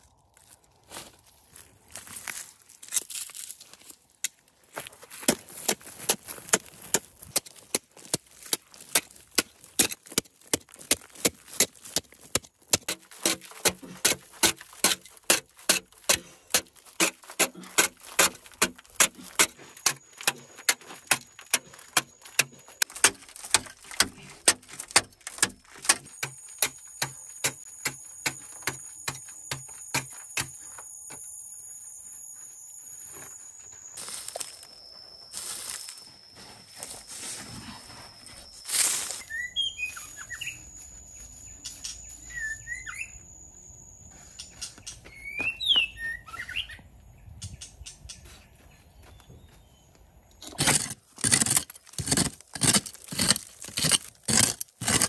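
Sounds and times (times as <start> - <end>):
metal hoe striking stony soil: 4.2 - 30.8, 50.4 - 55.0.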